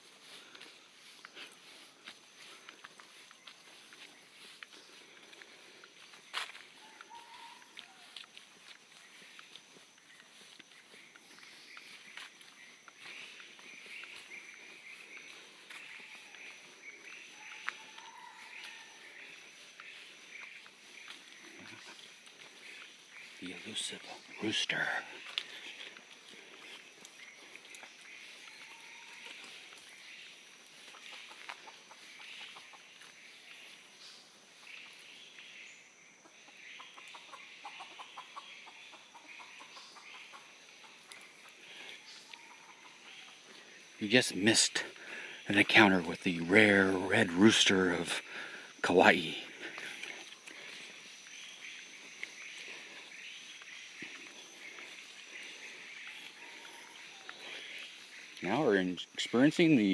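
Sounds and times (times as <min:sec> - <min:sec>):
footsteps crunching dry leaves: 0:00.0 - 0:35.6
insects droning: 0:00.0 - 0:59.9.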